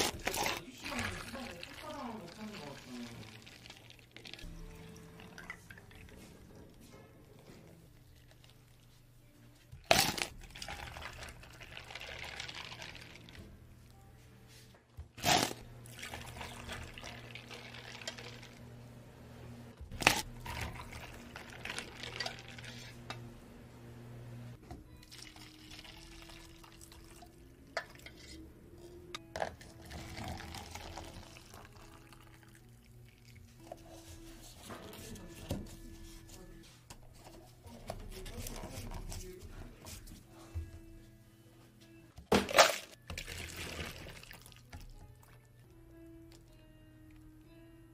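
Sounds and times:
liquid pouring into cups of ice: 0.0s - 6.2s, 10.0s - 13.4s, 15.2s - 18.6s, 20.0s - 23.0s, 25.0s - 28.1s, 29.5s - 33.6s, 42.6s - 45.4s.

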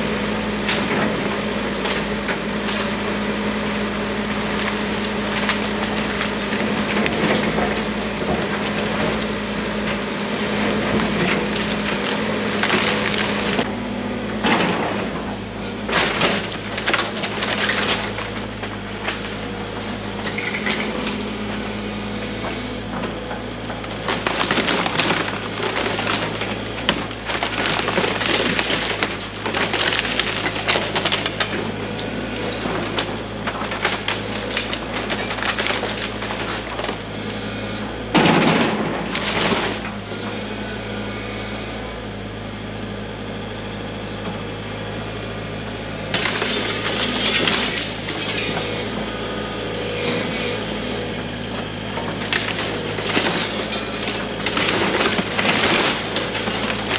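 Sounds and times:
excavator engine running: 0.0s - 56.9s
wood cracking and splintering: 4.4s - 13.7s, 14.4s - 21.6s, 22.4s - 40.3s, 46.1s - 56.9s.

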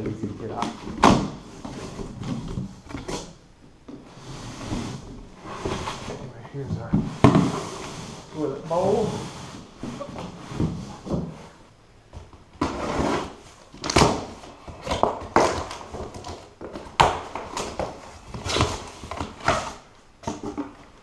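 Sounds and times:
cardboard scrapes and rustles: 4.1s - 6.3s, 7.0s - 11.6s, 12.6s - 13.6s.

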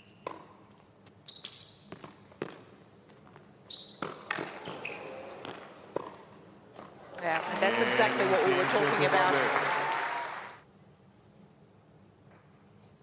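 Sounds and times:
tennis ball bouncing: 0.2s - 0.8s, 1.9s - 4.7s, 5.4s - 7.8s
racket striking tennis ball: 4.0s - 4.6s.

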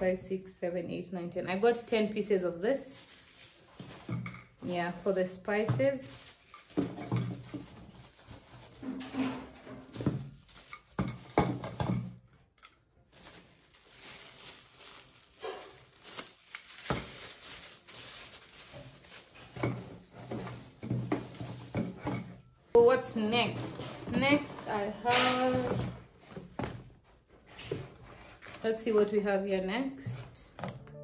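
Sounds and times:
plastic wrapping crinkling: 1.6s - 12.5s, 13.1s - 22.2s
cardboard rustling: 2.5s - 9.0s, 9.8s - 12.0s, 13.1s - 28.7s.

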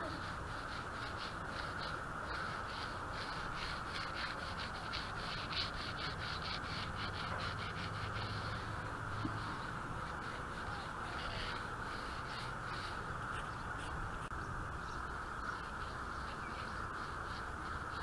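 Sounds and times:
brush scrubbing: 0.0s - 14.4s
steady background hiss: 0.0s - 18.0s.

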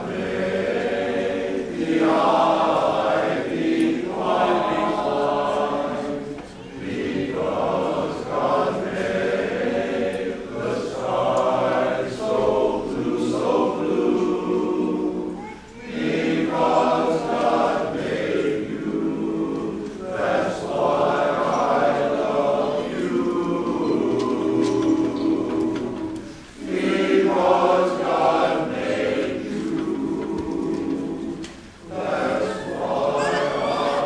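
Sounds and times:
men's chorus singing: 0.0s - 34.0s.

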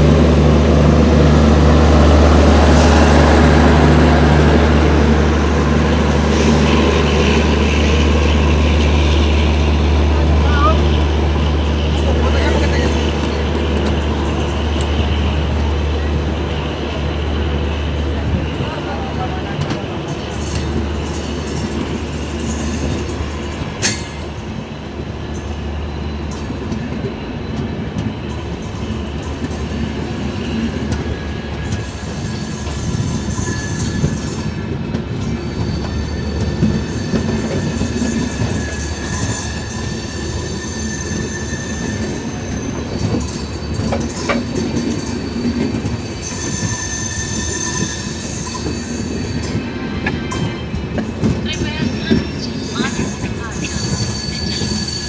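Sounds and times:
train wheels rumbling on rails: 0.0s - 55.0s
high wheel squeals: 31.3s - 51.0s, 51.8s - 55.0s.

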